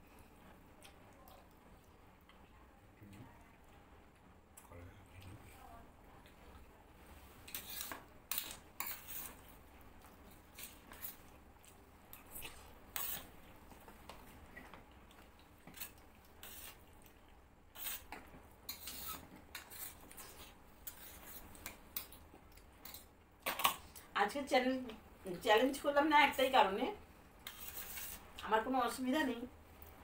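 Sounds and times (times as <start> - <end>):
spoons scraping on steel plates: 7.5 - 9.4, 18.7 - 20.0, 27.4 - 28.2.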